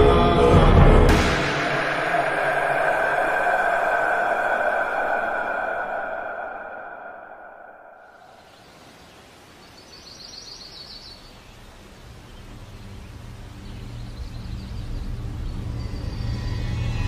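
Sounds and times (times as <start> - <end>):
low eerie drone music: 0.0 - 8.2, 13.1 - 17.0.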